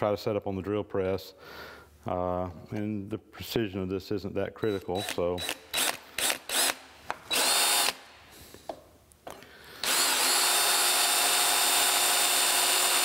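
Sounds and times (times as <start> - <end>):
hand drill boring through iron: 4.7 - 8.0, 9.8 - 13.0.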